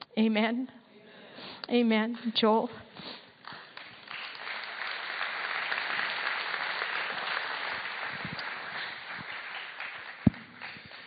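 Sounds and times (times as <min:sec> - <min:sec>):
congregation applauding: 0:03.4 - 0:11.0.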